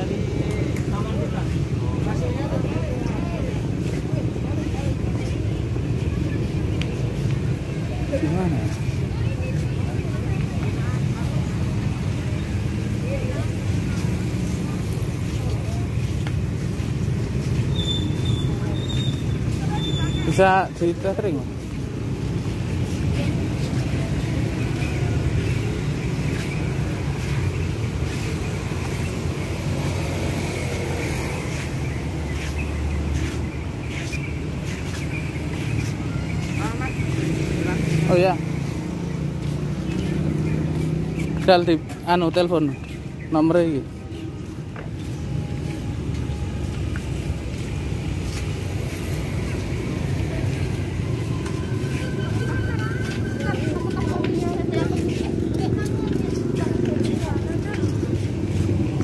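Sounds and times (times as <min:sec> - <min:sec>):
city street rumble: 0:00.0 - 0:59.0
road traffic: 0:00.0 - 0:59.0.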